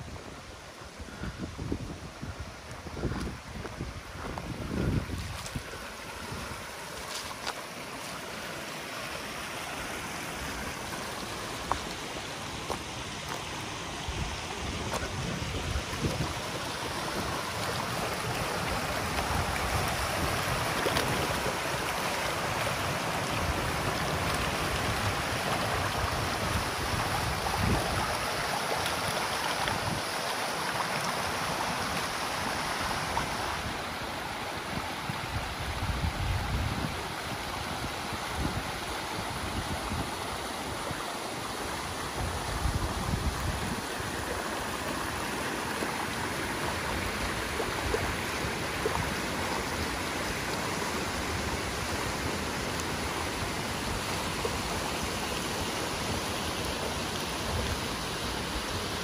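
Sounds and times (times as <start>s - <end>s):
stream rushing over rocks: 0.0s - 59.0s.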